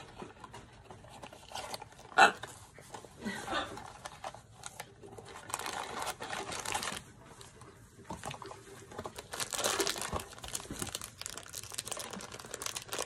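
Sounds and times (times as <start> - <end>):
foil bag crinkling: 3.3 - 7.6, 8.2 - 13.0.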